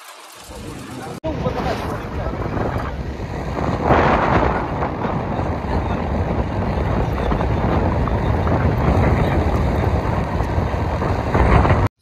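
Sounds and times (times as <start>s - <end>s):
heavy low rumble: 0.4s - 11.9s
wind buffeting microphone: 0.5s - 12.0s.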